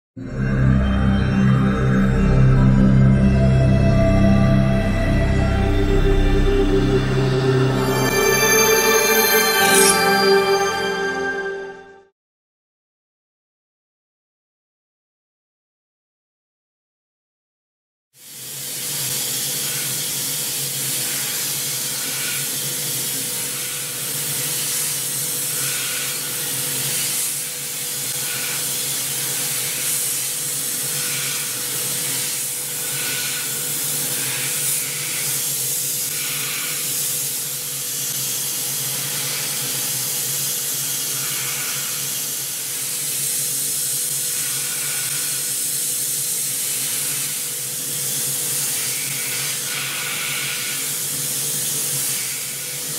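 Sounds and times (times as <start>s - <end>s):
steady machine tone: 0.2s - 12.1s
hiss of oil mist spray: 18.2s - 52.9s.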